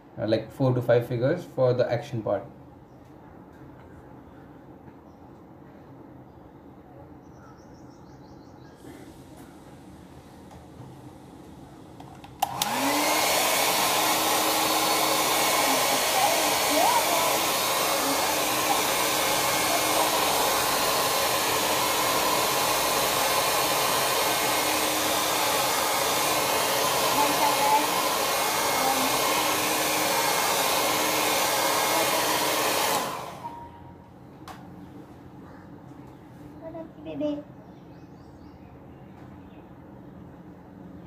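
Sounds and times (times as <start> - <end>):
hair dryer switch click: 12.0 - 13.4
hair dryer blowing: 12.2 - 33.9.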